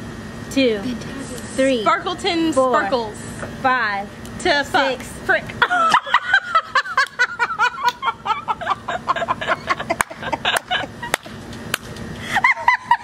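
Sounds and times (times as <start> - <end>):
women giggling: 5.6 - 11.3, 12.2 - 13.0.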